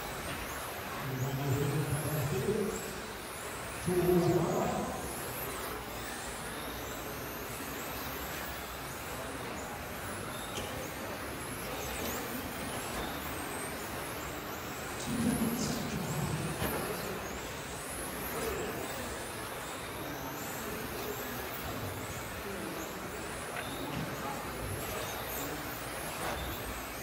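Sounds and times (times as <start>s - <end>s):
rc car motors whining: 0.0s - 27.0s
steady background hiss: 0.0s - 27.0s.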